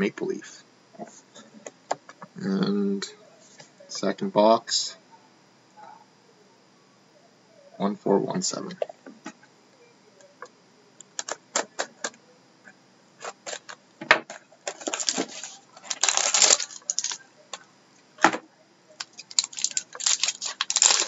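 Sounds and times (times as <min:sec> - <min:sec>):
plastic crinkling: 0:13.2 - 0:17.7, 0:19.0 - 0:21.0
knife slitting shrink-wrap: 0:14.7 - 0:17.2, 0:19.0 - 0:21.0.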